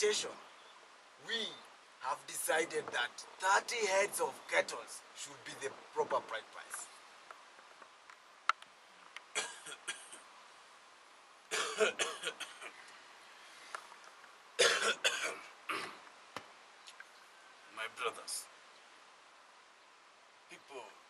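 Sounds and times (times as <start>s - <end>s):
men coughing: 9.4s - 10.2s, 11.5s - 12.8s, 14.6s - 16.0s
men clearing their throats: 11.5s - 12.7s, 14.6s - 16.0s.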